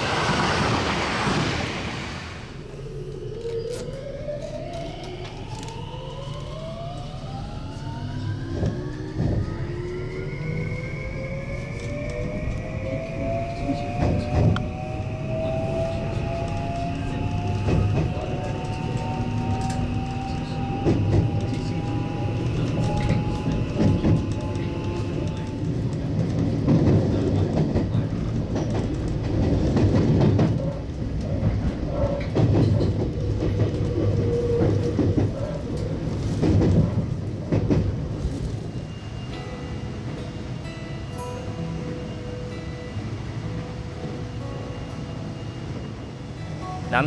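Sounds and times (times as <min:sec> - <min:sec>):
train running rumble: 0:06.6 - 0:39.4.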